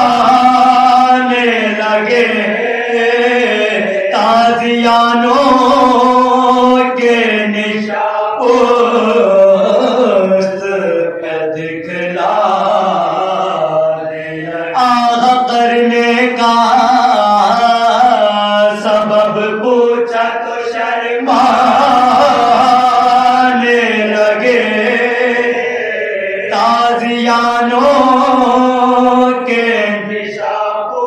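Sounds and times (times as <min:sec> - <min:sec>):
men chanting in unison: 0:00.0 - 0:31.0.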